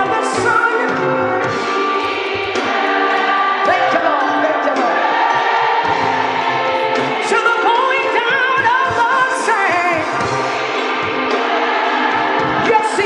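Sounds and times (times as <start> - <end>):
choir singing gospel music: 0.0 - 13.0.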